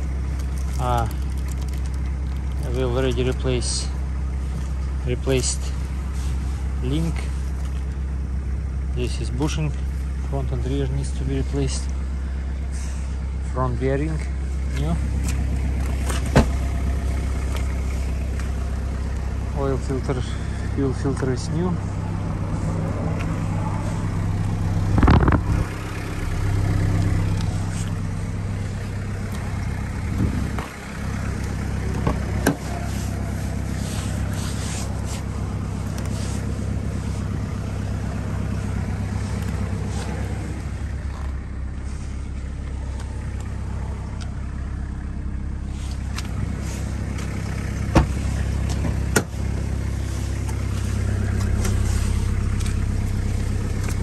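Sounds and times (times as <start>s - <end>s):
diesel car engine idling: 0.0s - 54.0s
car doors knocking and clicking: 15.2s - 16.7s, 31.9s - 32.7s, 47.8s - 49.7s.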